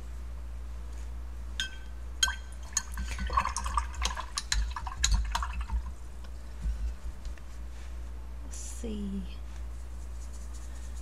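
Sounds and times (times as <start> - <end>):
paintbrush rinsed in water jar: 2.2 - 6.0.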